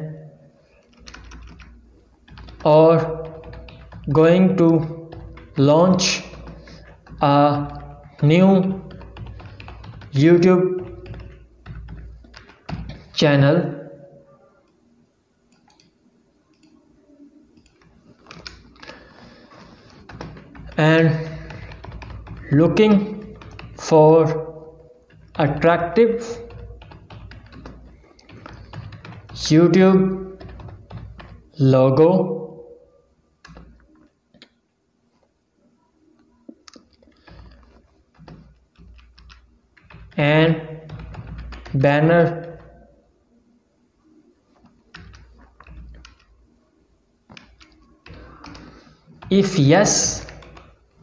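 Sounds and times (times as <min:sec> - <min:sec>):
keyboard keystrokes: 0:00.8 - 0:13.2, 0:17.6 - 0:31.5, 0:33.4 - 0:34.5, 0:36.5 - 0:42.8, 0:44.6 - 0:46.3, 0:47.3 - 0:50.8.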